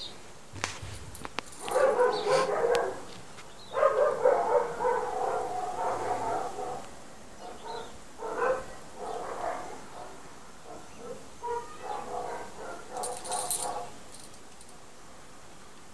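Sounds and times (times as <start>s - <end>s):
dog whining: 1.6s - 3.0s.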